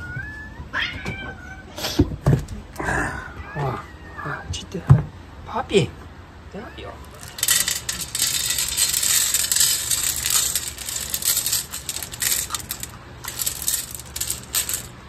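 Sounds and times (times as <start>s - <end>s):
kibble pouring onto metal tray: 7.1s - 14.9s.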